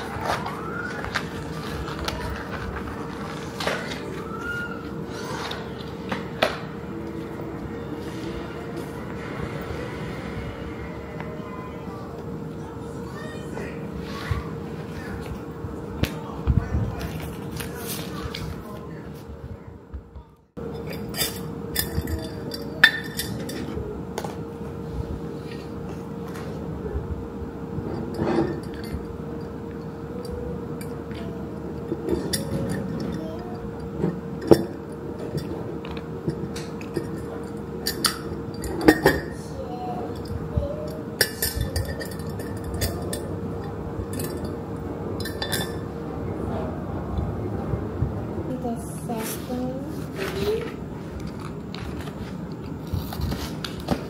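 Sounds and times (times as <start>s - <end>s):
glass jar clinking: 36.2s - 39.4s, 41.2s - 44.6s, 45.2s - 45.9s.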